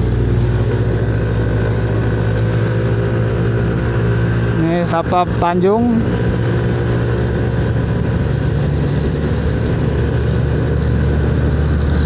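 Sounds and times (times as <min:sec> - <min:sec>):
scooter engine: 0:00.0 - 0:12.0.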